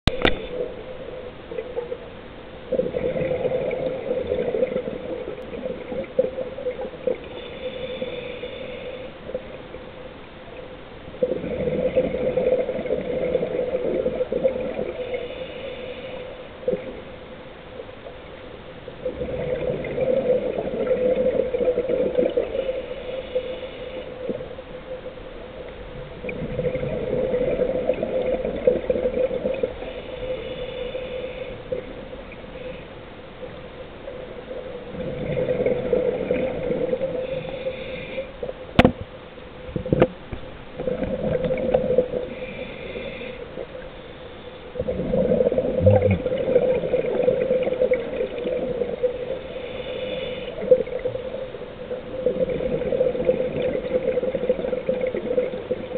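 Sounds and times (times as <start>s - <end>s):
diver breathing through regulator: 7.3s - 9.3s, 29.8s - 31.7s, 36.3s - 38.4s, 42.1s - 44.6s, 49.3s - 51.0s.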